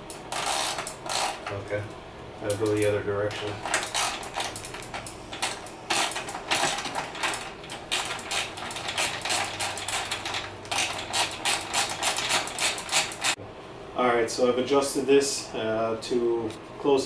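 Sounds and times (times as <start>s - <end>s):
ratchet wrench clicking: 0.0s - 1.5s, 3.6s - 13.4s.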